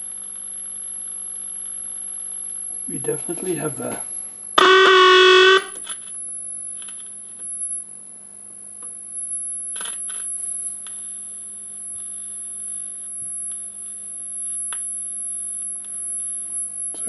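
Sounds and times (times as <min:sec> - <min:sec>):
steady hum: 0:00.0 - 0:17.0
radio howl: 0:02.9 - 0:05.8
high-pitched whine: 0:02.9 - 0:06.1.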